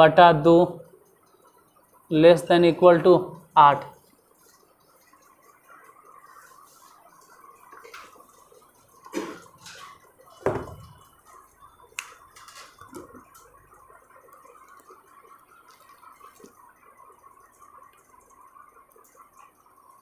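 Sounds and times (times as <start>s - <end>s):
faint steady hiss: 0.0s - 20.0s
knocks and thumps: 9.1s - 11.0s.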